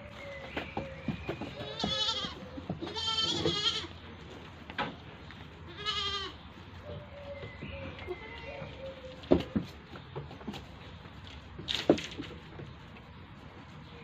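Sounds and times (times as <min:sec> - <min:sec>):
quavering animal cries: 0:05.7 - 0:06.4.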